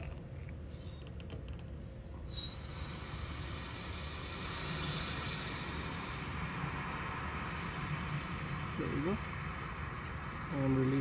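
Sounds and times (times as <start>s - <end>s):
refrigerant hissing: 2.3s - 11.0s.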